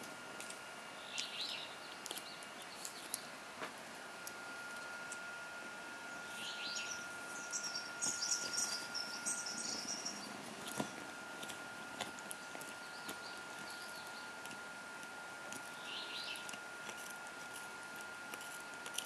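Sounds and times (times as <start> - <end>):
thin high whine: 0.0 - 19.0
birds chirping faintly: 0.8 - 3.4, 6.0 - 14.7, 15.5 - 16.6.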